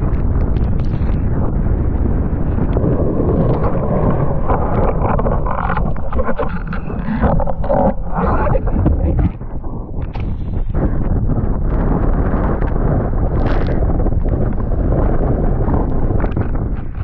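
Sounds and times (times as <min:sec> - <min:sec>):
water rushing under board: 0:00.0 - 0:17.0
wind buffeting microphone: 0:00.0 - 0:17.0
water slapping and splashing: 0:02.5 - 0:10.4.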